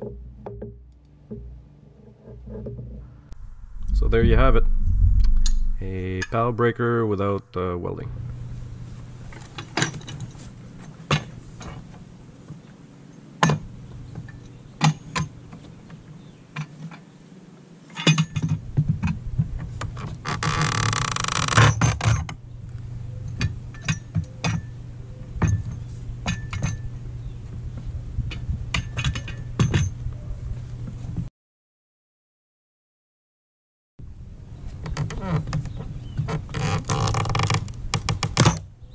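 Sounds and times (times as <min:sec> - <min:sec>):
steady low hum: 0:00.1 - 0:16.5
board creaking as nails pull out: 0:19.8 - 0:22.4, 0:34.8 - 0:38.7.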